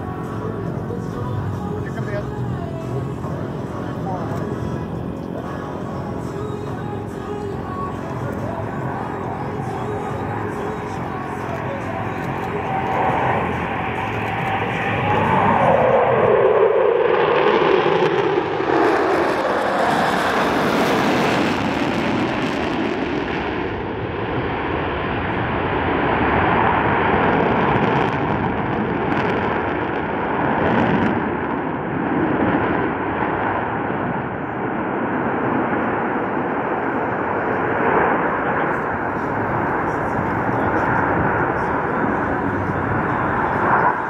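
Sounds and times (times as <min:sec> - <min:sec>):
jet engines roaring past: 0:00.0 - 0:44.0.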